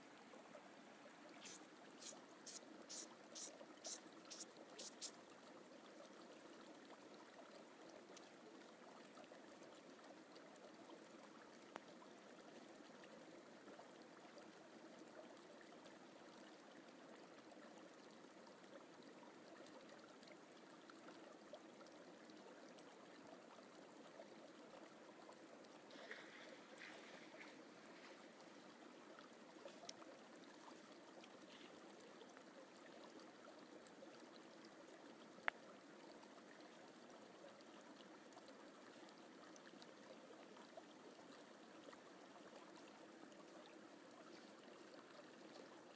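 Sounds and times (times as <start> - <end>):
forest stream rushing: 0.8 - 5.3.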